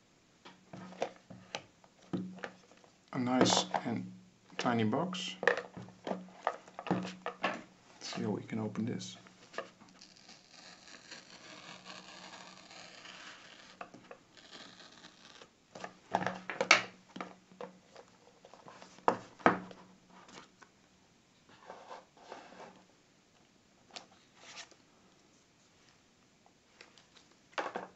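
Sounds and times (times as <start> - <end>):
scratchy cardboard rustling: 9.4 - 15.4.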